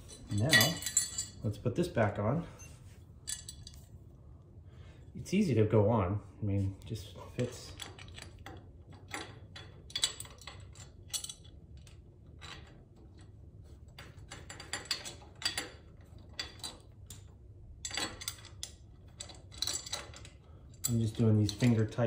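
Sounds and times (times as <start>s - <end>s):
small metallic clicks and clinks: 0.0s - 1.4s, 3.2s - 3.9s, 7.4s - 13.3s, 14.0s - 22.0s.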